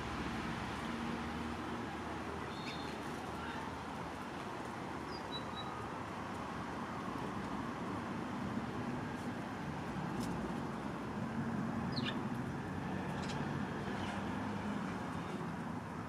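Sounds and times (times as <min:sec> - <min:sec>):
bird chirping: 0:11.9 - 0:12.2.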